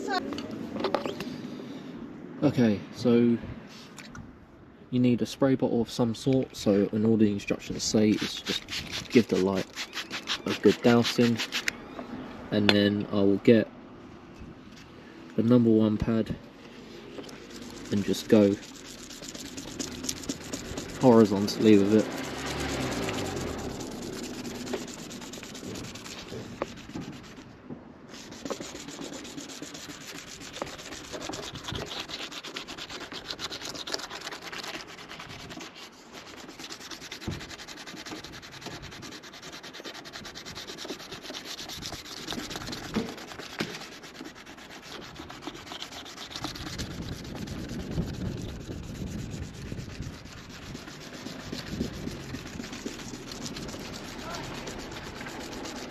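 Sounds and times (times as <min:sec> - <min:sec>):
wet sanding plastic: 0:07.4 - 0:11.7, 0:17.2 - 0:55.9.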